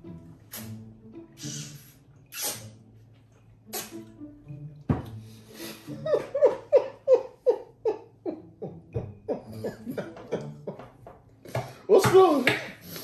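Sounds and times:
woman laughing: 5.9 - 10.9.

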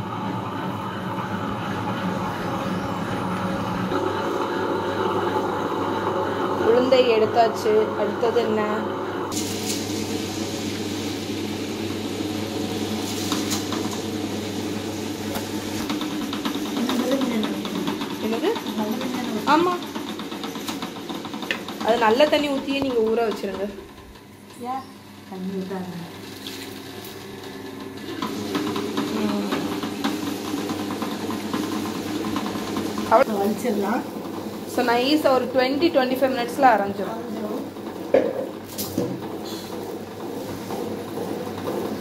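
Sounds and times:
wet grinder motor hum: 0.0 - 42.0.

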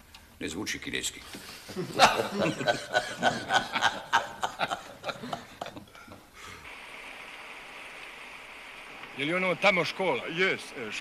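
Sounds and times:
men laughing: 1.7 - 6.2.

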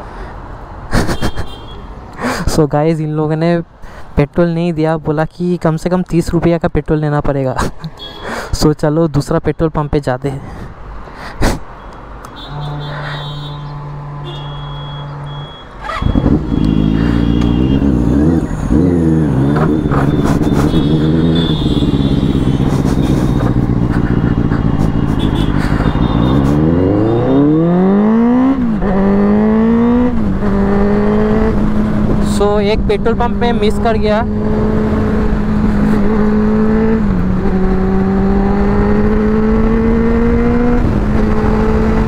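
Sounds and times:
motorcycle engine starting and revving: 15.8 - 32.4.

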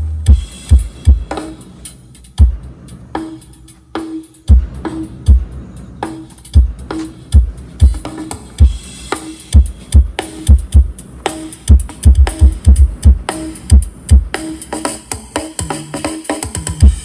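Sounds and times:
heavy kick drum thumps: 0.0 - 1.7, 2.4 - 3.4, 4.4 - 5.7, 6.5 - 14.6
electronic dance music: 0.2 - 17.0.

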